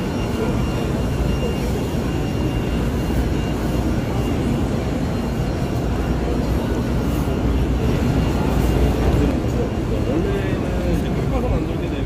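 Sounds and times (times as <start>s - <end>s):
faint high whines: 0.0s - 11.3s.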